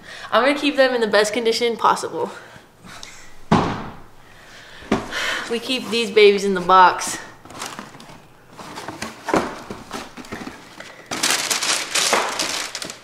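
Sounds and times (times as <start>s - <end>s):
paper crinkling and rustling: 7.4s - 13.0s.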